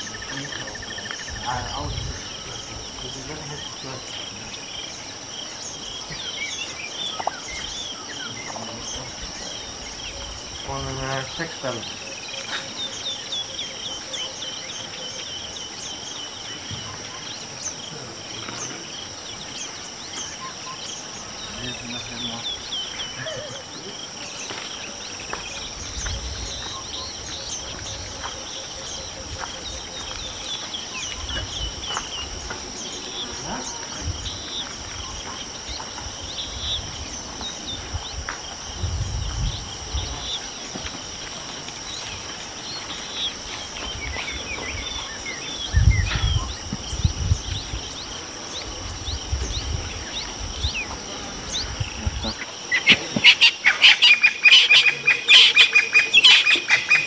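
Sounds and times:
high-pitched insect trill: 0.0s - 57.0s
bird chirps: 41.8s - 57.0s.

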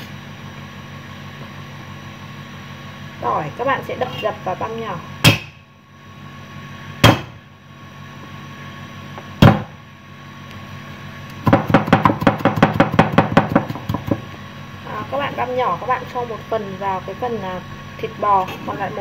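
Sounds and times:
rapid cleaver mincing chops: 5.2s - 5.6s, 7.0s - 7.4s.

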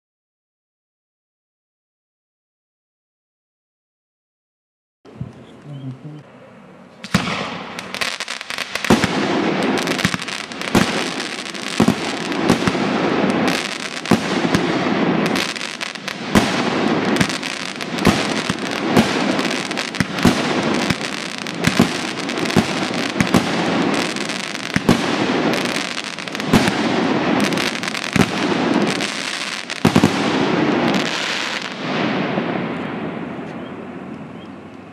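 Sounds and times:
firework crackling: 7.0s - 34.3s
firework shots: 7.0s - 34.4s.

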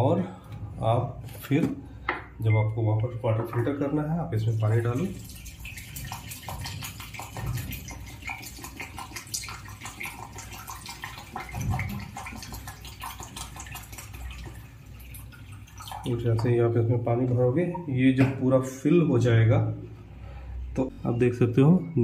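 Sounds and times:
water pouring into plastic container: 4.4s - 16.6s.

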